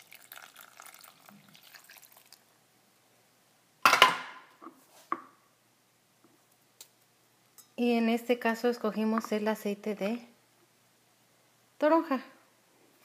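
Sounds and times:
juice pouring and dripping: 0.0 - 2.6.

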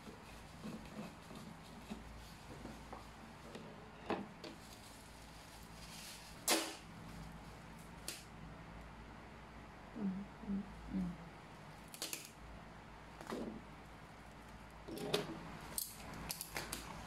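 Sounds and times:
bubble wrap crinkling: 4.5 - 8.1.

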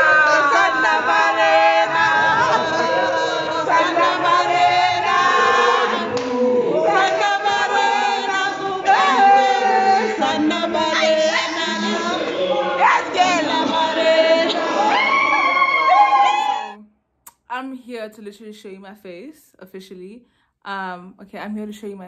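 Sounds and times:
choir singing in harmony: 0.0 - 15.9.

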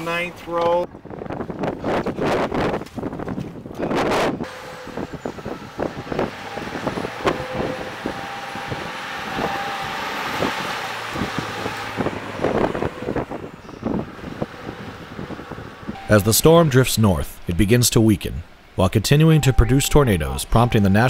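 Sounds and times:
truck engine pulling under load: 4.2 - 21.0.

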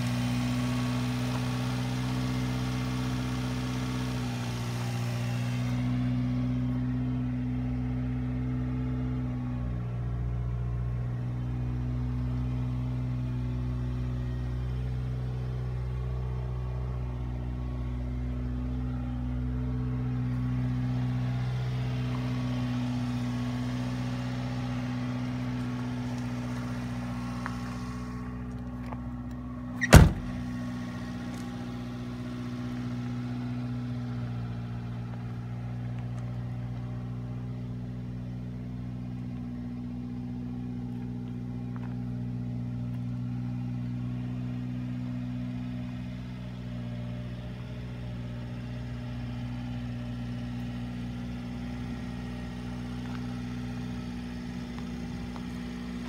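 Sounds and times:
truck engine idling: 0.0 - 56.0
truck door slamming: 29.8 - 30.5.

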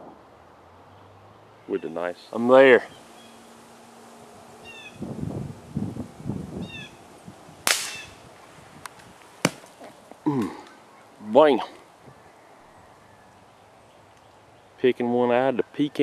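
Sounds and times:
suppressed rifle shot crack: 7.6 - 8.2.

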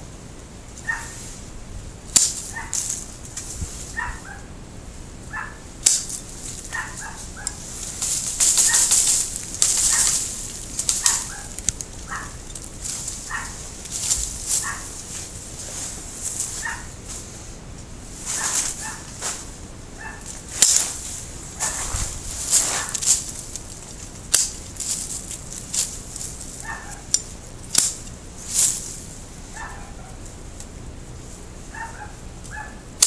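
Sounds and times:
leaves rustling: 0.0 - 33.0
pruning shears snipping twigs: 2.1 - 4.2, 5.8 - 17.3, 18.2 - 29.0.

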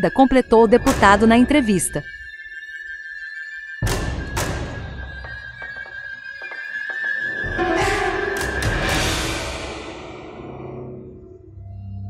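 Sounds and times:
dramatic music heavy hit: 3.8 - 5.8, 7.4 - 11.6
held high note: 7.4 - 9.5.

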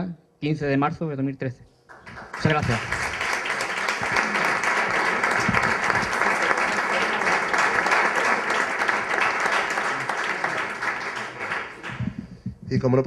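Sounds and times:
audience applauding: 1.9 - 12.6.

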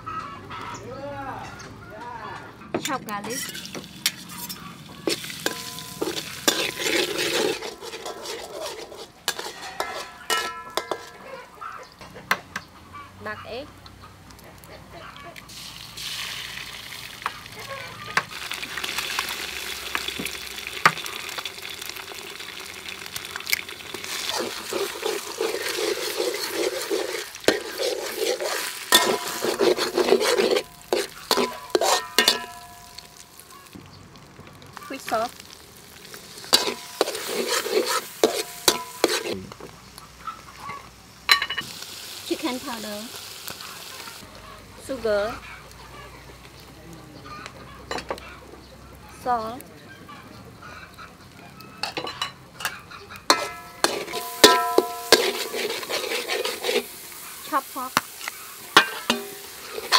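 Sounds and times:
spatula clanking against wok: 2.8 - 11.3, 24.4 - 33.0, 36.5 - 39.4, 51.8 - 56.9, 58.7 - 59.9
metal spatula scraping wok: 2.8 - 11.5, 23.9 - 33.5, 36.0 - 39.5, 51.8 - 59.9
garlic sizzling in oil: 3.2 - 11.2, 15.4 - 46.8, 51.0 - 59.9.

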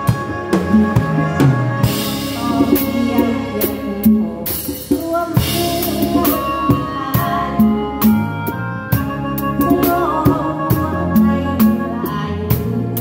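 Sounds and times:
bass line: 0.0 - 13.0
drum kit beat: 0.0 - 13.0
keyboard melody: 0.0 - 13.0.

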